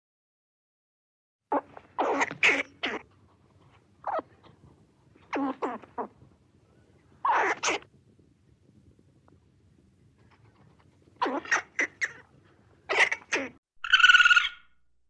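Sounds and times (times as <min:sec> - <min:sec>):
squirrel barking: 0:01.5 - 0:03.1, 0:04.0 - 0:04.3, 0:07.2 - 0:07.9, 0:11.2 - 0:12.2, 0:12.9 - 0:14.7.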